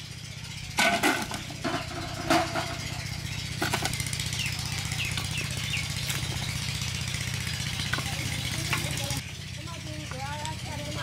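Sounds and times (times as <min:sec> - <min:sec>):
small engine running: 0:00.0 - 0:11.0
bird chirps: 0:02.8 - 0:10.9.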